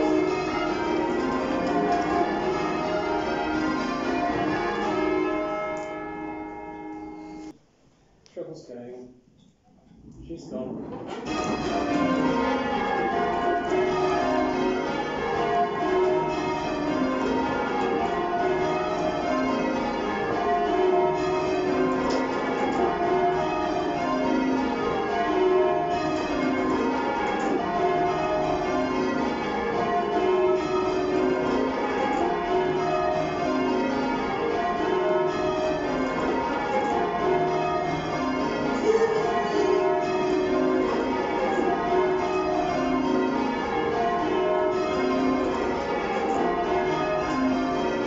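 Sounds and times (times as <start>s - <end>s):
church bells ringing in changes: 0.0s - 7.5s, 11.2s - 48.0s.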